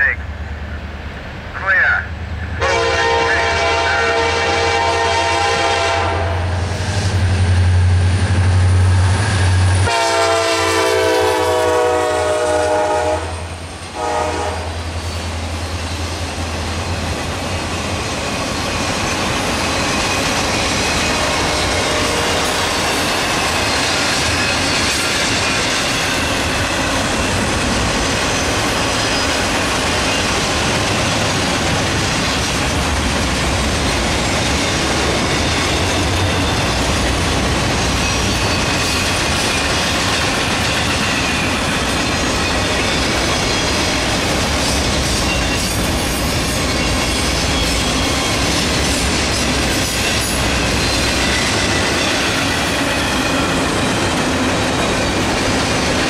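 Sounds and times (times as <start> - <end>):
diesel locomotives passing: 0.0 - 56.0
locomotive air horn: 2.6 - 6.5, 9.8 - 14.9, 21.4 - 22.7
freight cars clickety-clack: 15.0 - 56.0.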